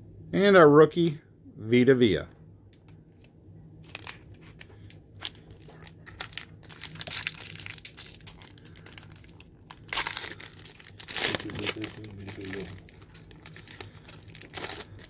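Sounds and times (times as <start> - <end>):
foil wrapper crinkling: 3.8 - 15.0
foil wrapper ripping: 3.8 - 15.0.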